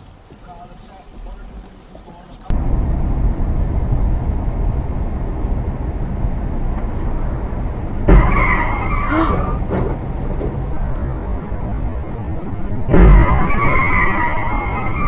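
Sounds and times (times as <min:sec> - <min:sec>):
car road and engine rumble: 0:00.0 - 0:15.0
car collision bang: 0:07.9 - 0:15.0
high metal screeching: 0:08.2 - 0:09.8, 0:10.7 - 0:15.0.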